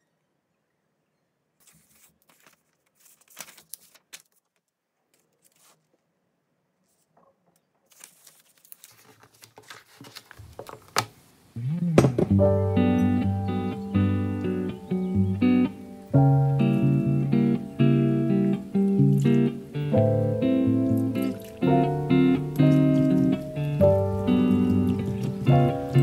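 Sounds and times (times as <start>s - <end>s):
packaging crinkling and rustling: 1.6s - 6.0s, 7.8s - 11.2s.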